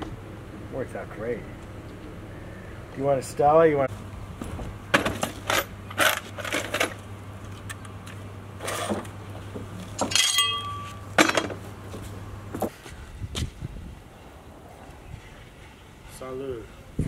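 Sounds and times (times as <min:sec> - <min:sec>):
hand tools clinking on concrete: 0:10.0 - 0:11.5
ringing metallic note: 0:10.2 - 0:11.0.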